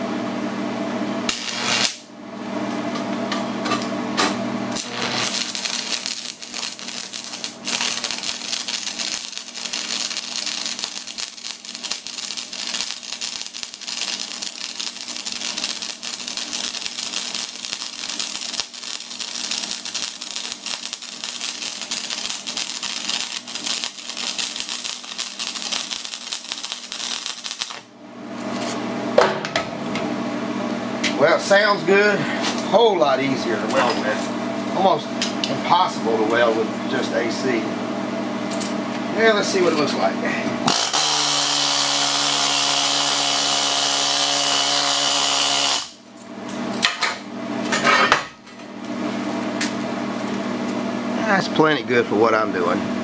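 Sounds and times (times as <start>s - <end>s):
welder transformer hum: 0.0s - 53.0s
welding arc crackling and sizzling: 1.3s - 2.1s, 4.7s - 27.9s, 40.7s - 46.1s
welding arc popping: 1.3s - 2.1s, 4.7s - 27.9s, 40.7s - 46.0s.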